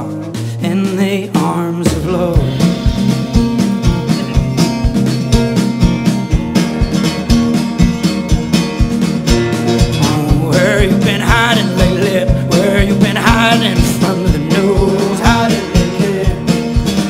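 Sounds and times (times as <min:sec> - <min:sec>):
person singing: 0:00.0 - 0:08.8, 0:09.6 - 0:17.0
acoustic guitar strummed hard: 0:00.0 - 0:17.0
drum hits: 0:00.2 - 0:17.0.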